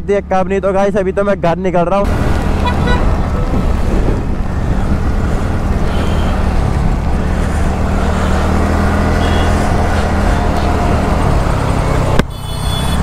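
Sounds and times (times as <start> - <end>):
traffic: 0.0 - 13.0
wind rush on microphone: 2.1 - 8.8
scooter engine running: 2.4 - 13.0.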